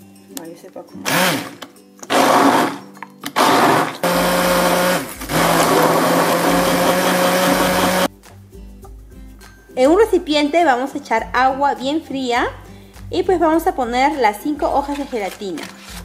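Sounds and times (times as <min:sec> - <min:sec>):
stick blender running: 0:01.1 - 0:08.1.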